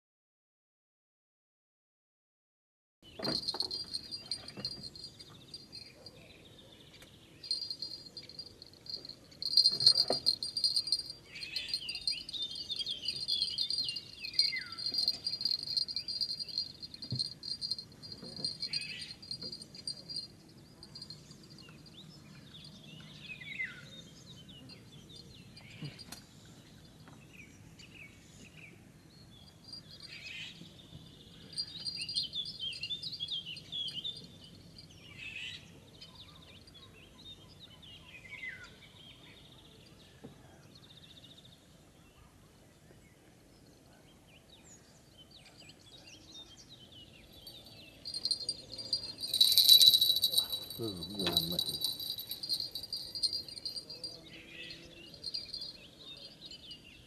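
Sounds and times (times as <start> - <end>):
crickets trilling: 3.2 - 6.0, 7.4 - 21.2, 31.6 - 33.3, 47.4 - 54.2, 55.1 - 56.6
birds whistling: 7.5 - 20.3, 47.5 - 55.8.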